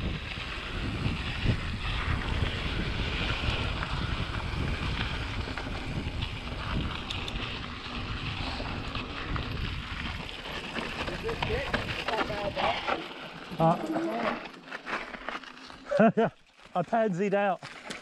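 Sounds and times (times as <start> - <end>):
wind rumble on microphone: 0.0 - 12.8
bike clicks and rattles: 0.0 - 18.0.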